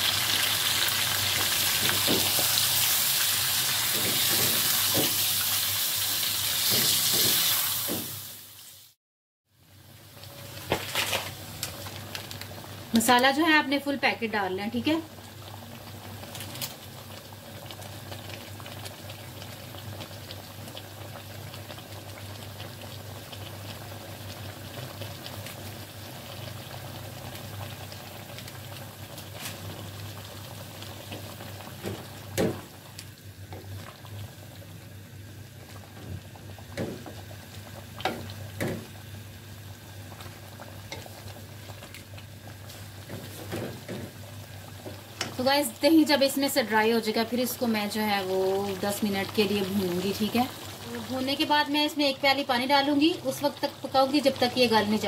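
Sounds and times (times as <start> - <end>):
chicken bubbling and sizzling in oil: 0.0 - 55.0
spatula knocking and scraping pan: 3.9 - 5.3, 6.6 - 8.2.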